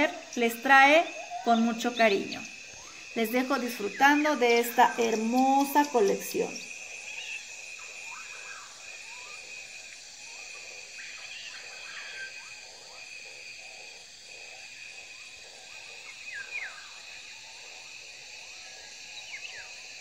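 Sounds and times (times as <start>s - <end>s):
crickets chirping: 0.0s - 20.0s
short bird calls: 1.0s - 2.1s.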